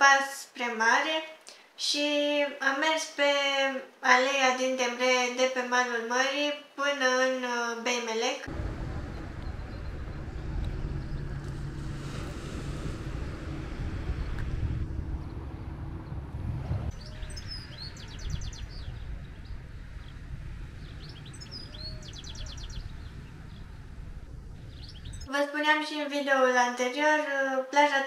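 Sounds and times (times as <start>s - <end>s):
faint steady hum: 8.4s - 25.5s
low rumble: 8.5s - 25.3s
small birds trilling: 16.9s - 25.3s.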